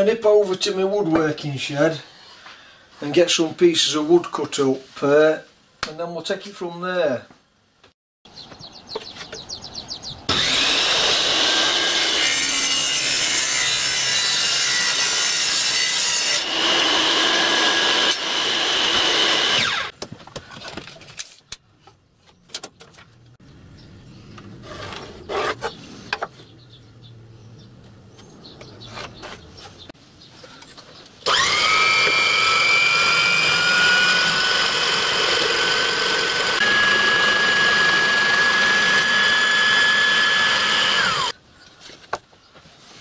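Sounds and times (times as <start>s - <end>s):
table saw cutting wood: 10.3s - 19.9s, 31.2s - 41.3s.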